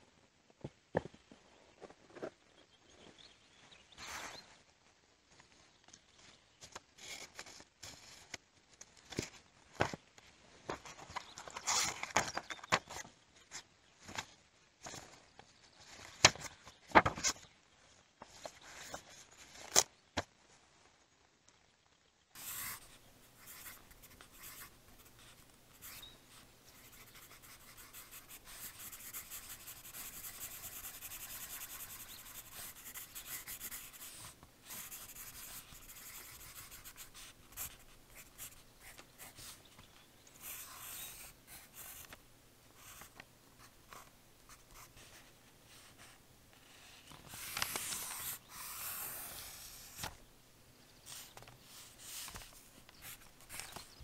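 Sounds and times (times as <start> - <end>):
pencil scratching on paper: 22.4 - 39.6, 40.4 - 42.1, 45.8 - 50.1.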